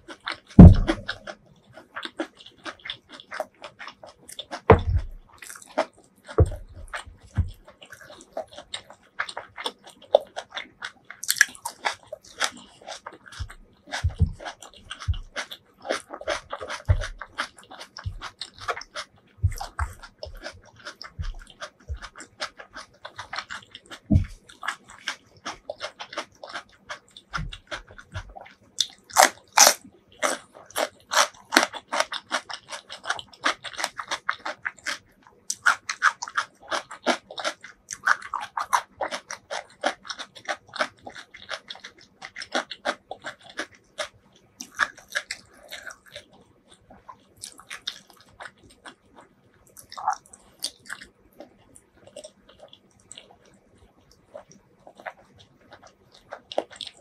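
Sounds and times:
fingers squishing rice: 0.0 - 53.5
chewing with wet mouth clicks: 0.0 - 57.0
soft thumps: 0.6 - 1.2, 4.7 - 5.2, 6.4 - 7.6, 24.1 - 24.4.

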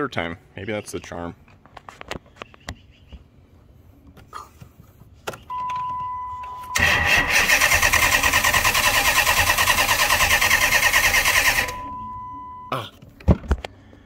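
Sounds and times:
engine cranking by starter motor: 6.7 - 11.8.

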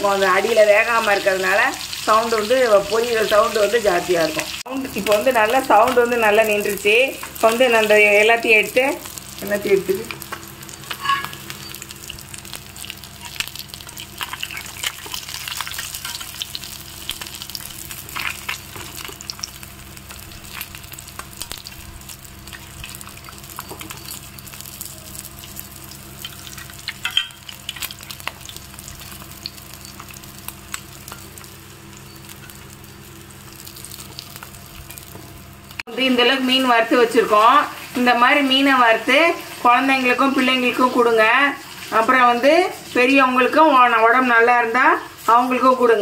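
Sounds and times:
fish sizzling in oil: 0.0 - 46.0
metal spatula scraping griddle: 10.8 - 11.6.

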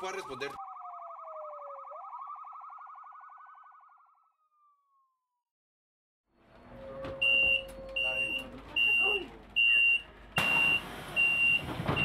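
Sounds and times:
police siren: 0.0 - 5.5
bus interior hum: 6.4 - 12.0.

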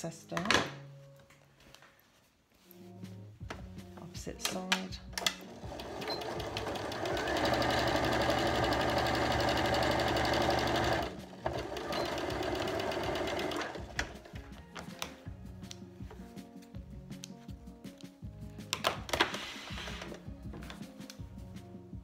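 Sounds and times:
sewing machine stitching: 5.2 - 14.2.

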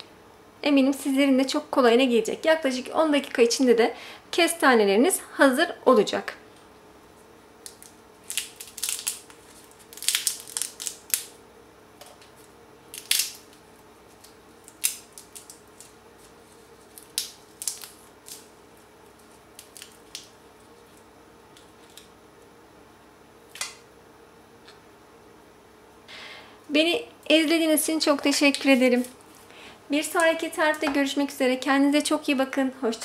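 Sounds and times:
faint steady hum: 0.0 - 33.0
chestnut shell crackling: 7.6 - 11.4, 12.9 - 22.2.

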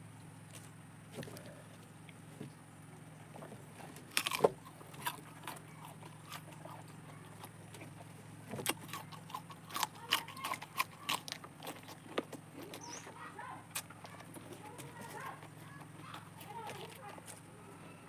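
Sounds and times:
steady low hum: 0.0 - 18.0
shell crackling and chewing: 3.7 - 17.6
shell cracking when bitten: 4.1 - 7.5.

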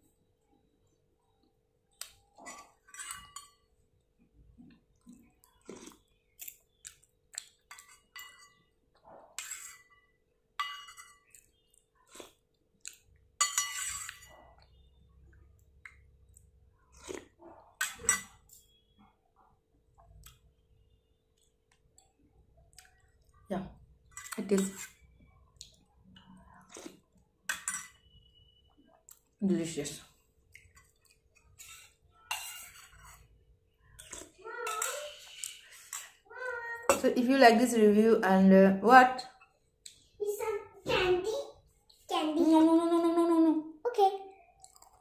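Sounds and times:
metal spoon scraping pot: 2.4 - 3.6, 7.7 - 8.7, 9.4 - 11.6, 13.4 - 14.4, 17.6 - 18.9, 24.0 - 25.2, 27.5 - 28.6, 30.7 - 33.4, 34.0 - 36.3.

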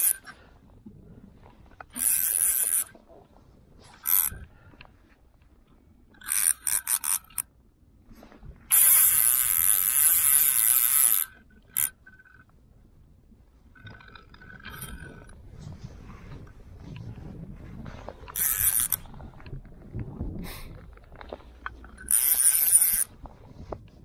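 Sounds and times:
fly reel drag buzzing: 0.0 - 0.3, 1.9 - 2.9, 4.0 - 4.4, 6.2 - 7.5, 8.7 - 12.4, 18.4 - 19.1, 22.0 - 23.1.

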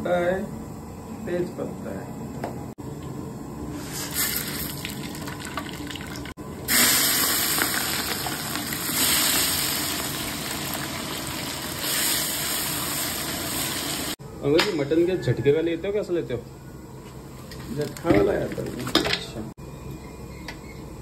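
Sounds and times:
onions sizzling in oil: 3.8 - 14.2
spices sizzling in hot oil: 3.8 - 14.2.

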